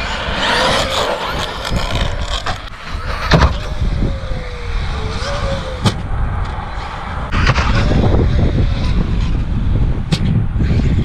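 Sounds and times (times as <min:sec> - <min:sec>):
toy truck motor whining: 0:00.0 - 0:03.8
low rumble: 0:00.0 - 0:10.6.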